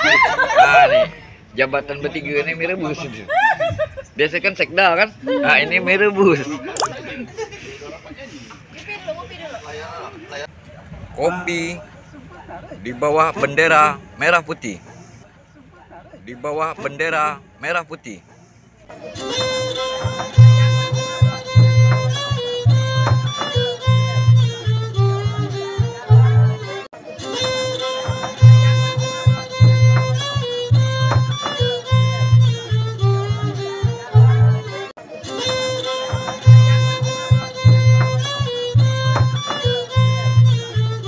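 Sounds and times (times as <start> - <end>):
heavy low beat: 20.0 - 26.7, 27.4 - 34.7, 35.4 - 41.0.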